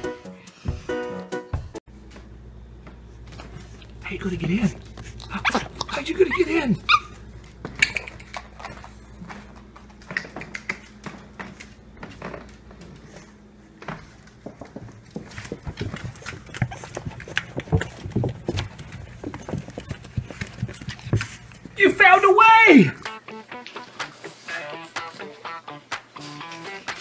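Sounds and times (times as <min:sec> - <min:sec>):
puppy claws tapping on wooden floor: 0:07.4 - 0:13.0, 0:13.9 - 0:21.8.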